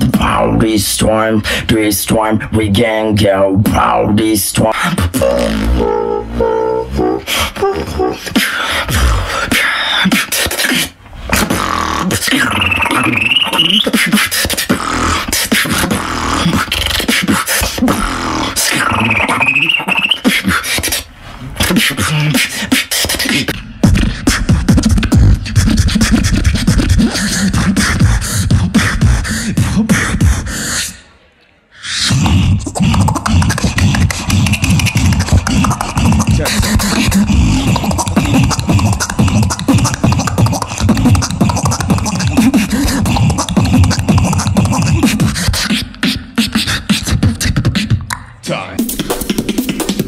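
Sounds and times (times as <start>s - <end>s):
person beatboxing: 0.0s - 31.1s, 31.8s - 50.0s
heavy bass line: 2.4s - 9.3s, 32.4s - 45.2s
whistling tone: 12.3s - 14.2s, 18.7s - 20.4s.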